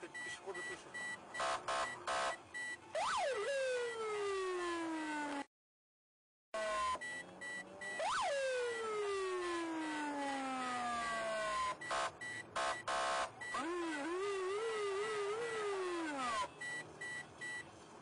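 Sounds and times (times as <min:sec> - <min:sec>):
faint high beep: 0:00.0 - 0:02.8, 0:06.6 - 0:08.0, 0:16.3 - 0:17.7
police siren wailing: 0:00.6 - 0:05.5, 0:06.6 - 0:17.6
siren warble: 0:01.0 - 0:05.4, 0:06.6 - 0:17.6
harsh horn blasts: 0:01.4 - 0:02.4.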